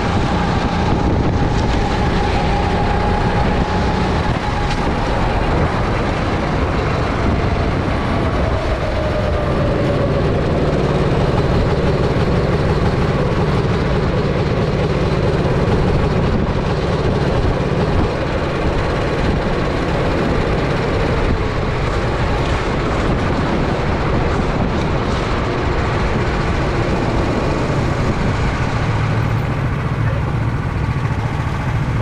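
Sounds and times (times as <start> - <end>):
kart engine running: 0.0 - 32.0.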